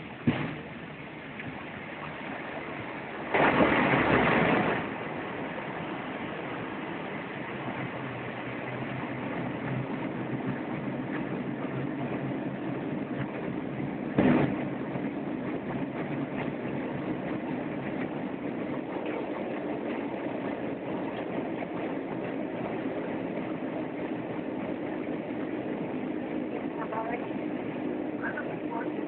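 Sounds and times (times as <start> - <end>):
turboprop engines running: 0.0 - 29.0
loud thump: 0.2 - 0.7, 14.2 - 14.6.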